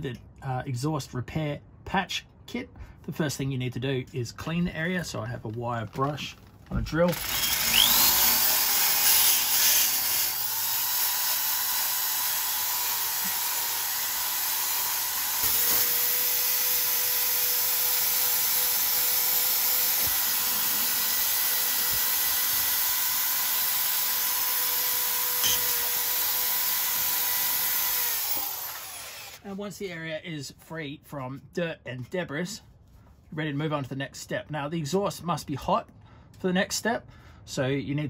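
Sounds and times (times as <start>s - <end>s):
electric drill motor whine: 7.1s - 29.5s.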